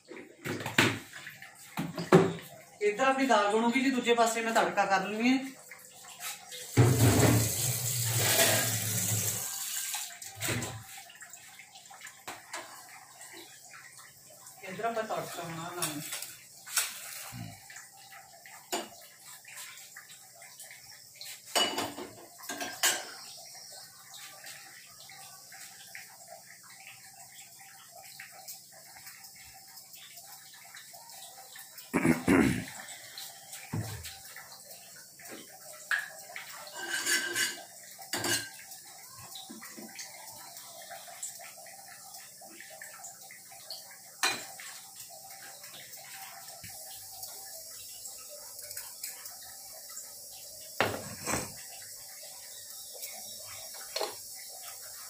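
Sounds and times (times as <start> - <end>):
utensils clattering: 6.8 - 9.5, 21.5 - 23.2, 36.7 - 38.6, 50.8 - 51.6
steel kitchenware clinking: 36.7 - 38.6.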